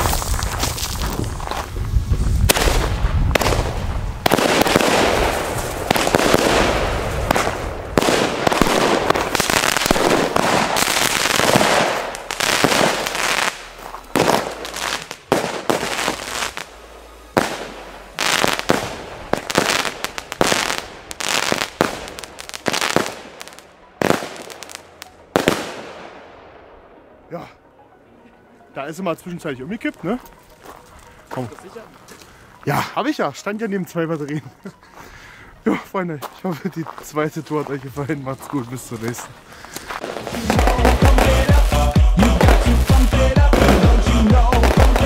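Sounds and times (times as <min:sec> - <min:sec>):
firework bangs and crackles: 0:00.0 - 0:26.2, 0:39.9 - 0:45.0
fireworks launching and bursting: 0:00.0 - 0:26.6, 0:39.9 - 0:45.0.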